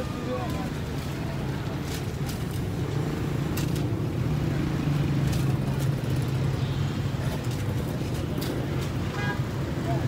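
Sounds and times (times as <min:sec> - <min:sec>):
traffic engine rumble: 0:00.0 - 0:10.0.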